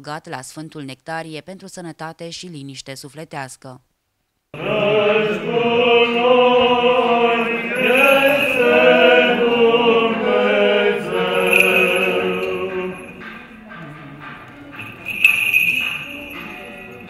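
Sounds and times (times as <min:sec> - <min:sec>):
voices singing liturgical chant: 0:04.6 - 0:17.0.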